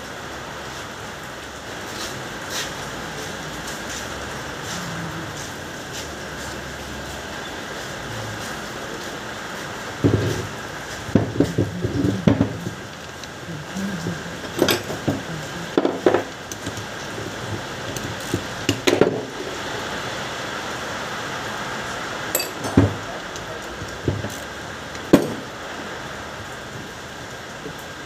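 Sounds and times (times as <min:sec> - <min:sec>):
steady background hiss: 0:00.0 - 0:28.0
metal parts clinking on workbench: 0:22.4 - 0:22.9.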